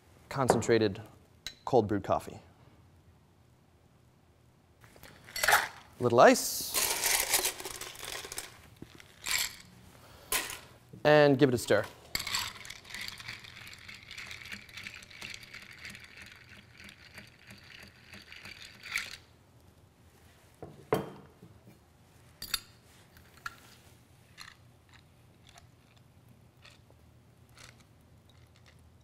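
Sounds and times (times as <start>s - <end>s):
ice rattling while stirred: 6.8s - 9.6s, 12.2s - 19.2s.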